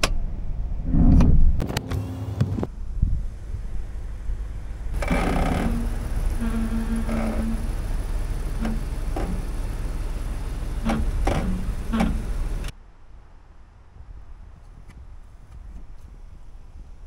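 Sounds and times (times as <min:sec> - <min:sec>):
truck engine running low: 0:02.0 - 0:12.7
short squeaks and clicks: 0:05.0 - 0:12.7.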